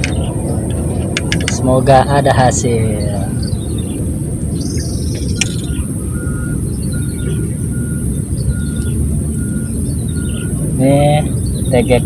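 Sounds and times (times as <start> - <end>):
birds chirping: 0.0 - 12.0
steady low rumble: 0.0 - 12.0
sharp click: 1.1 - 1.6, 5.1 - 5.6.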